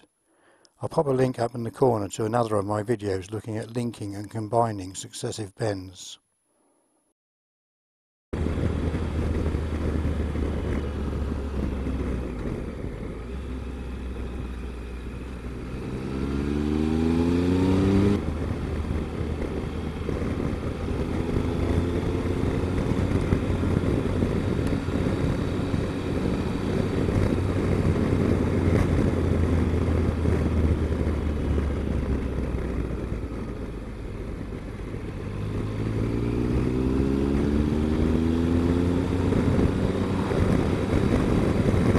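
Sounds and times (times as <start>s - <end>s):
motorcycle engine revving: 8.4s - 41.9s
wind rush: 15.4s - 41.9s.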